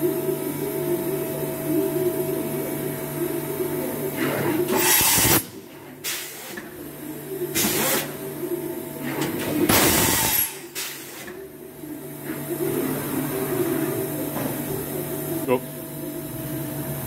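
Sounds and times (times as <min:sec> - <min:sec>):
machine humming: 0:00.0 - 0:17.0
compressed air hiss bursts: 0:04.8 - 0:05.4.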